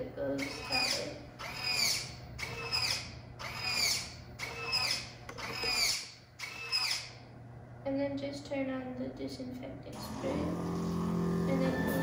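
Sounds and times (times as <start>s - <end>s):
steady low hum: 0.0s - 12.0s
servo motor whining: 0.4s - 7.1s.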